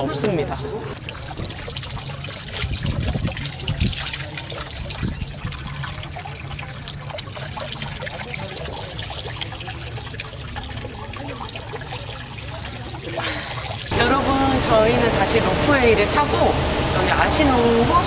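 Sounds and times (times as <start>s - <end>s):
water trickling into stone basin: 0.0s - 17.5s
water poured from ladle: 0.9s - 13.9s.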